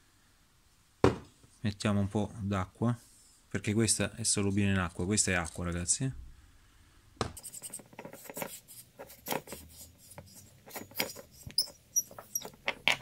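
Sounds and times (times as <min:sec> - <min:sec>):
gritty valve scraping and ticking: 0:07.4 - 0:13.0.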